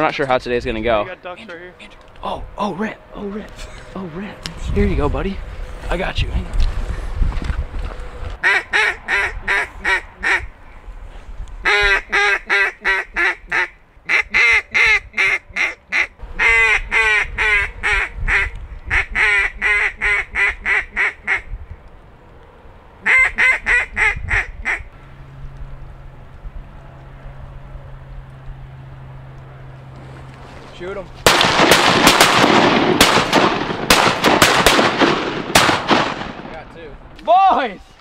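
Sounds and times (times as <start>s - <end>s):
duck call quacks: 8.4s - 10.5s, 11.6s - 21.5s, 23.0s - 24.9s.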